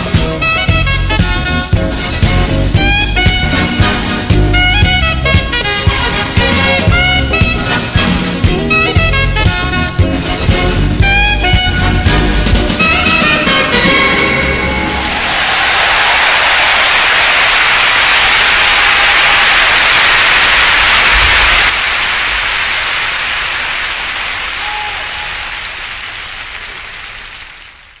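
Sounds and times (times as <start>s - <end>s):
loud steady static hiss: 14.8s - 28.0s.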